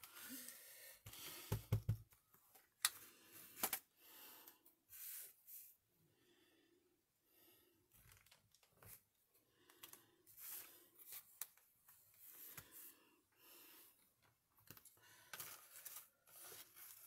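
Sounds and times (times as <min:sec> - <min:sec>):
paper and card rustling: 0:14.7 - 0:17.0.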